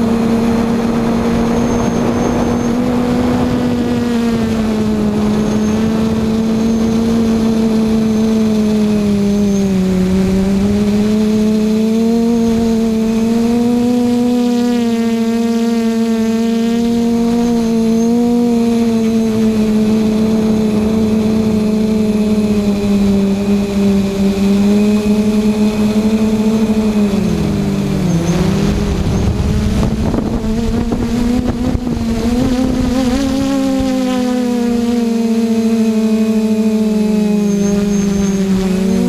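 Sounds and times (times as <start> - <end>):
quadcopter motors humming: 0.0 - 39.0
wind noise rushing: 27.1 - 33.9.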